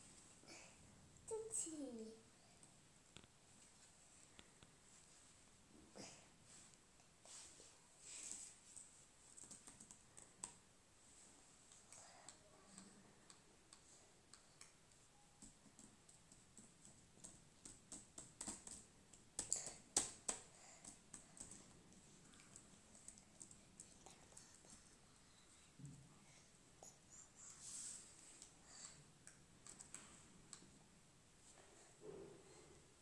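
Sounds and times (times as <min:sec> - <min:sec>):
laptop keys tapping: 0:09.3 - 0:10.6, 0:15.3 - 0:21.8, 0:22.5 - 0:24.8.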